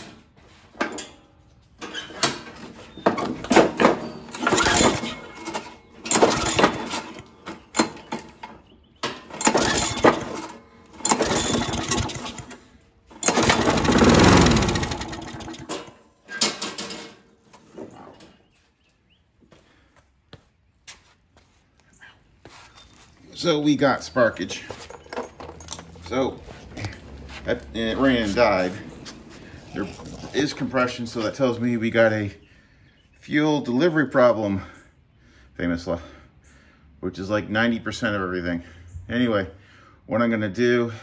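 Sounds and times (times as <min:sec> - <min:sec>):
mower engine cranking: 0:01.8 - 0:18.0, 0:24.1 - 0:31.6
mower engine firing and dying: 0:04.3 - 0:08.0, 0:09.3 - 0:16.1.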